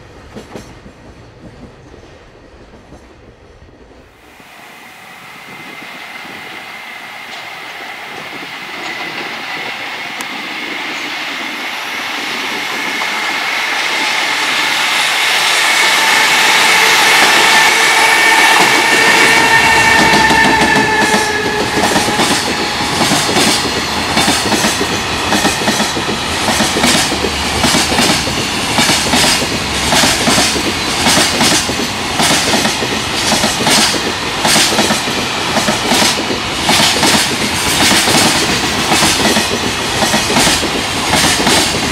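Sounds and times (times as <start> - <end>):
electric locomotive motor whine: 4.2 - 27.6
train wheels clacking over rail joints: 12.8 - 41.9.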